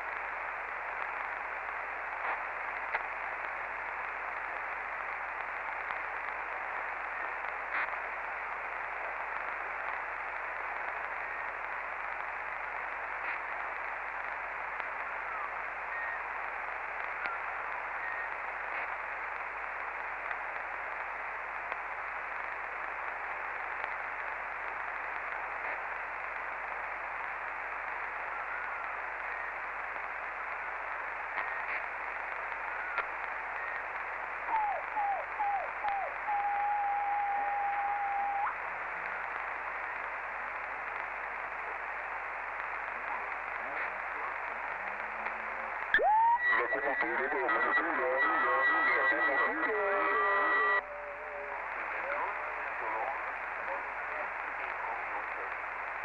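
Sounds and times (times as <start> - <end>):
radio static hiss: 0.0 - 56.0
faint clicks: 16.8 - 34.7.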